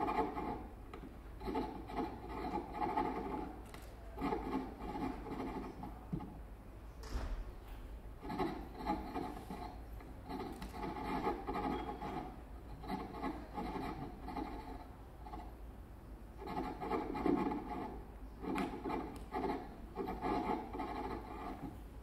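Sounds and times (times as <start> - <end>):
rough rubbing and scraping electronics: 0.0 - 0.6, 1.4 - 3.6, 4.2 - 5.9, 8.2 - 15.5, 16.4 - 21.8.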